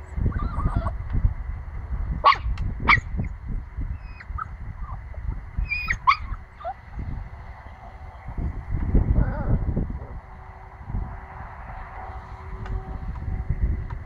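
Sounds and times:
puppy whining: 0:00.2 - 0:01.0, 0:04.0 - 0:07.2, 0:09.1 - 0:09.7
puppy yapping: 0:00.3 - 0:01.0, 0:02.2 - 0:03.2, 0:04.0 - 0:07.1.

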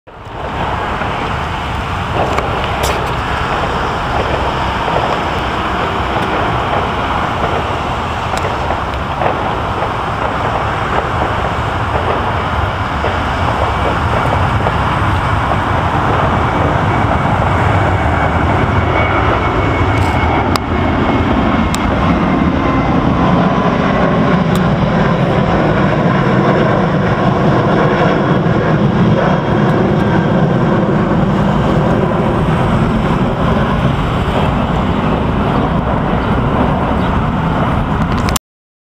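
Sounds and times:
jet airliner roar: 0:00.1 - 0:38.4.

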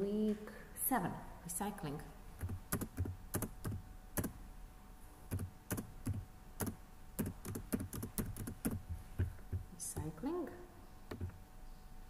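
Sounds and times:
computer keyboard typing: 0:02.4 - 0:04.4, 0:05.3 - 0:10.1, 0:11.1 - 0:11.4.

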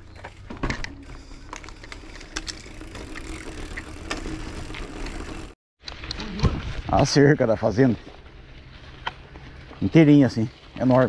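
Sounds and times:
bike clicks and rattles: 0:00.0 - 0:06.7
bike tyres rumbling on paving: 0:00.0 - 0:11.0.

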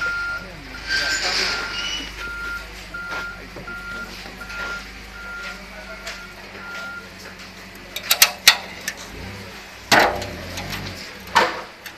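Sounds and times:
reversing alarm beep: 0:00.0 - 0:07.2.

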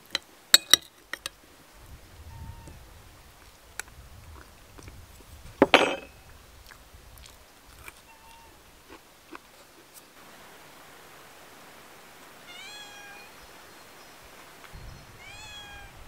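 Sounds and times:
spoon clinking on glass plate: 0:05.7 - 0:06.1.

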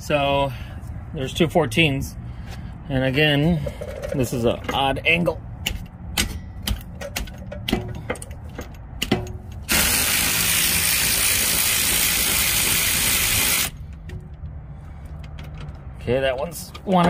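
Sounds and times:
cordless ratchet whirring: 0:09.7 - 0:13.8.

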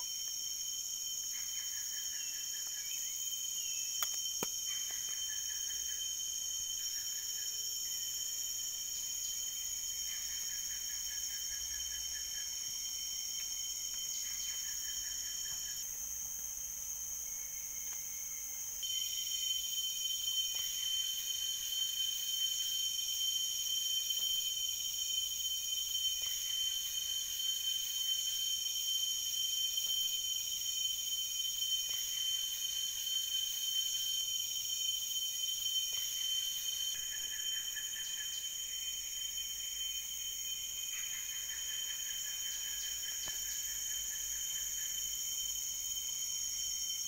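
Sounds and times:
insects calling: 0:00.0 - 0:47.0.

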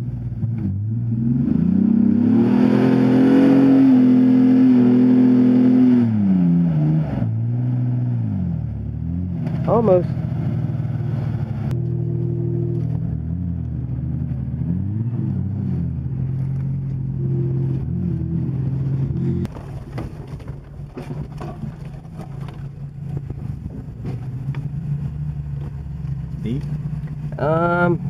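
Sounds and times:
engine revving hard: 0:00.0 - 0:10.0
engine hum inside cabin: 0:00.0 - 0:28.0
knocks and rattles: 0:19.5 - 0:24.8.

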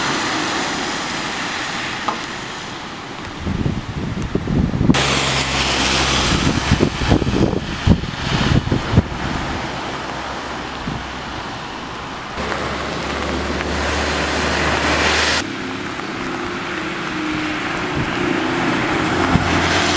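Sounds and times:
tyre spray through floodwater: 0:00.0 - 0:03.7, 0:04.9 - 0:19.9
heavy rain: 0:00.0 - 0:19.9
low engine hum: 0:04.4 - 0:19.9
bus engine droning: 0:04.7 - 0:19.9.

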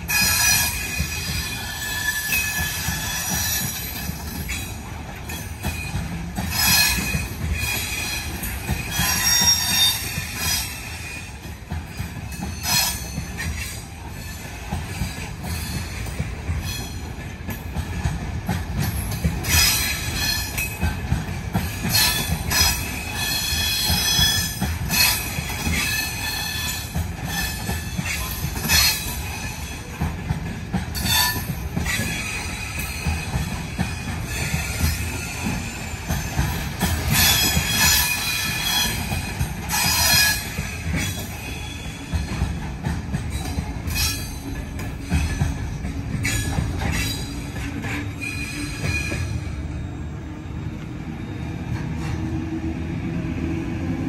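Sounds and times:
high-pitched metallic squealing: 0:00.0 - 0:11.3, 0:31.0 - 0:42.5, 0:43.3 - 0:50.0
train wheels rumbling on rails: 0:00.0 - 0:54.0.

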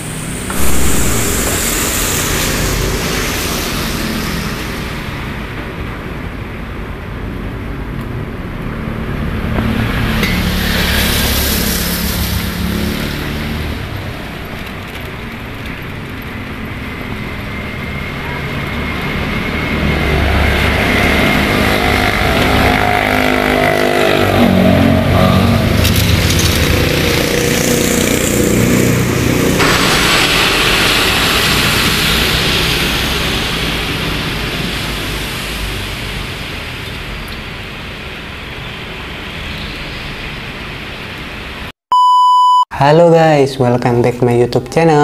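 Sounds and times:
vehicle passing close: 0:00.0 - 0:07.0, 0:08.8 - 0:37.1
road traffic rumble: 0:00.0 - 0:41.8.

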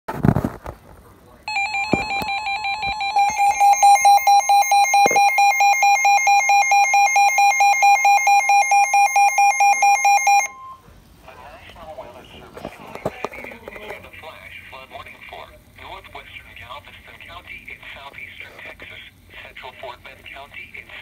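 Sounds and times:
warbling radio alarm: 0:01.5 - 0:10.9.

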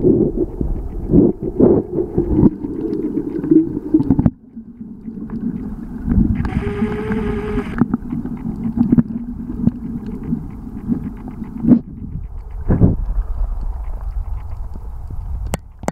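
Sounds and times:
underwater knocks and clicks: 0:00.0 - 0:15.9
underwater rushing water: 0:00.0 - 0:15.9
buzzing tone: 0:06.4 - 0:08.0.

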